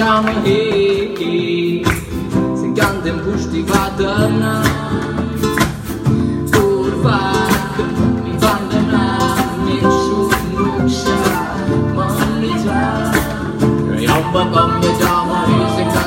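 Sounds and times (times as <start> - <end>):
strummed acoustic guitar: 0.0 - 16.0
person singing: 2.6 - 5.6, 6.2 - 16.0.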